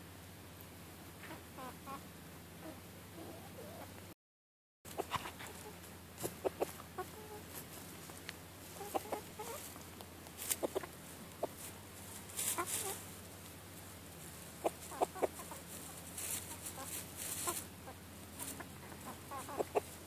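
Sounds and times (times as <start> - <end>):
chickens clucking softly: 0.6 - 4.1, 4.9 - 20.0
rustling: 4.9 - 20.0.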